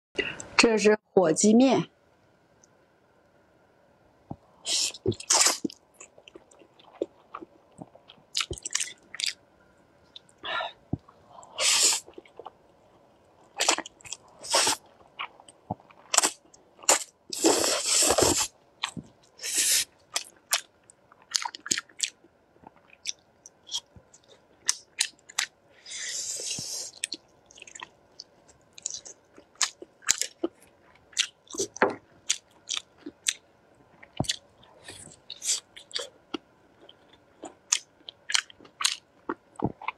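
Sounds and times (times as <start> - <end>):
person slurping noodles: 11.5 - 12.1, 14.4 - 14.8, 16.2 - 18.5
chewing and wet mouth clicks: 20.1 - 25.5, 26.9 - 30.6, 31.2 - 33.4.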